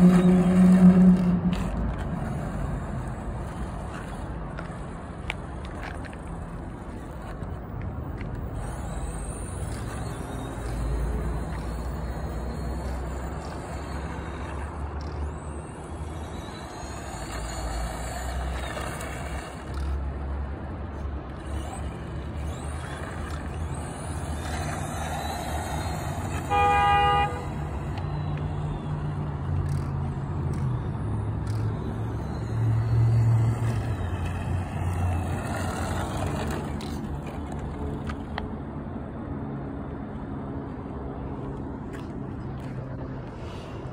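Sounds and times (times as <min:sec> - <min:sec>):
toy truck motor whining: 0:00.0 - 0:38.4
short horn toot: 0:26.5 - 0:27.4.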